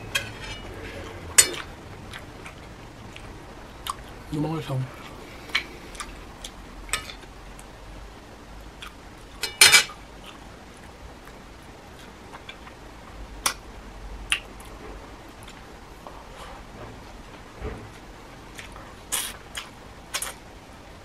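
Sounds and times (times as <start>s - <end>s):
cutlery clinking on a plate: 0.0s - 1.6s, 9.4s - 10.0s.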